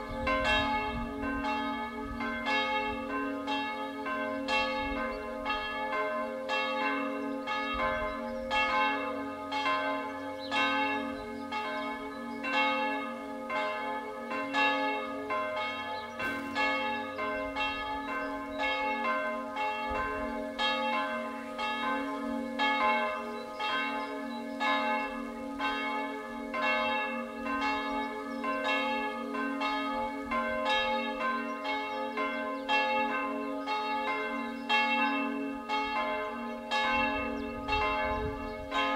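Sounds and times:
church bells ringing: 0.0s - 38.9s.

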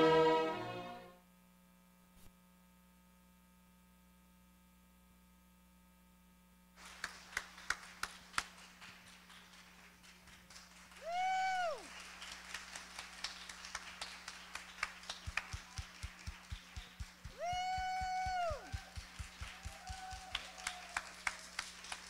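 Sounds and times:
orchestral string music: 0.0s - 1.2s
people clapping: 6.8s - 22.0s.

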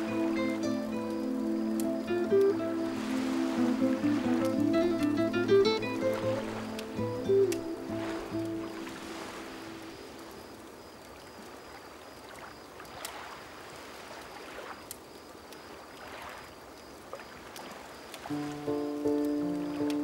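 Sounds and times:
music: 0.0s - 10.4s, 18.3s - 20.0s
bonfire crackling: 0.0s - 20.0s
small waves washing onto beach: 0.0s - 20.0s.

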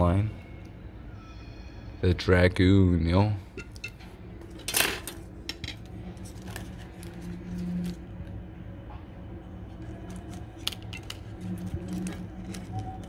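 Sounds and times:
steady low hum: 0.0s - 13.0s
card tag handling clicks and rustles: 9.7s - 13.0s.

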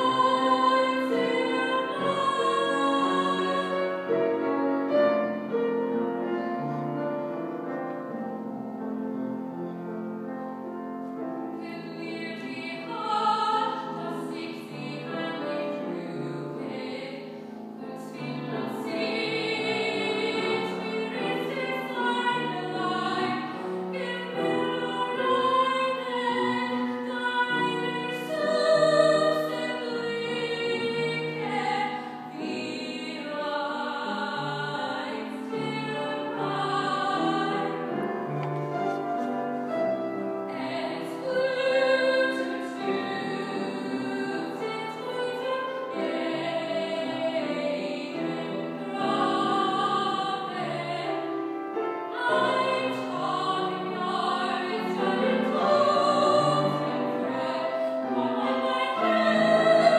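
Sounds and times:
woman singing classical song: 0.0s - 5.4s, 11.1s - 59.9s
grand piano: 0.0s - 59.9s.

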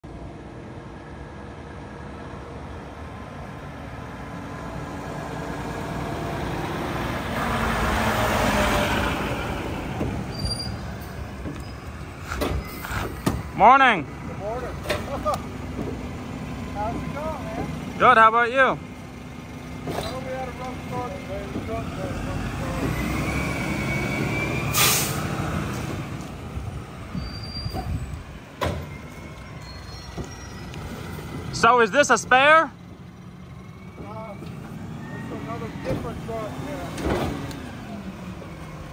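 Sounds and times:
garbage truck driving: 0.0s - 38.9s
high brake squeal: 10.2s - 13.2s, 22.7s - 25.3s, 27.1s - 28.2s, 28.8s - 31.2s, 33.7s - 36.8s
air brakes hissing: 10.3s - 13.3s, 23.7s - 25.4s.

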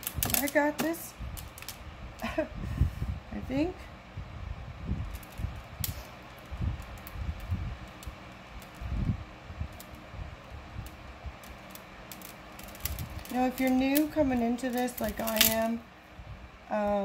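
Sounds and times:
low background hum: 0.0s - 17.0s
beads clicking: 5.0s - 15.7s.

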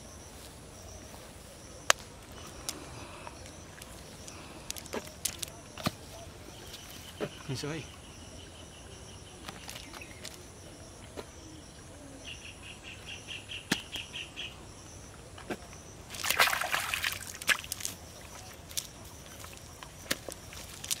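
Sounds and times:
fish flapping in a net: 16.1s - 21.0s.

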